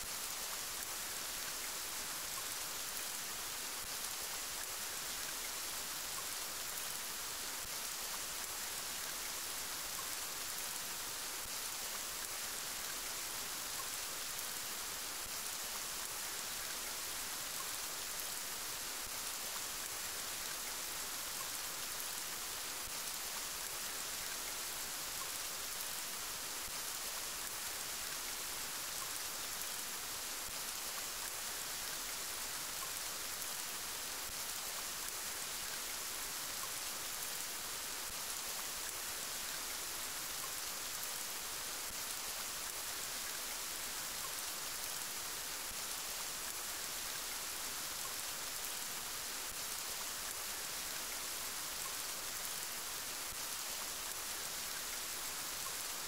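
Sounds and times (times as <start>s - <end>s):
steady rain hiss: 0.0s - 56.0s.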